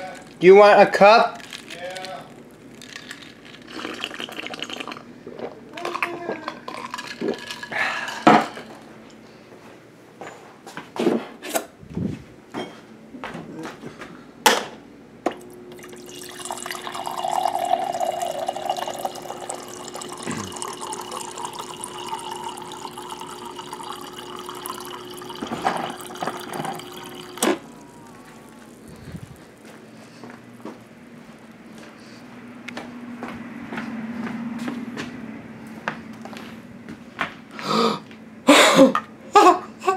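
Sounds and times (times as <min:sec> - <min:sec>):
dispenser hum: 0:00.0 - 0:10.4, 0:11.3 - 0:39.9
water pouring into a mug: 0:02.8 - 0:05.0, 0:15.7 - 0:29.2.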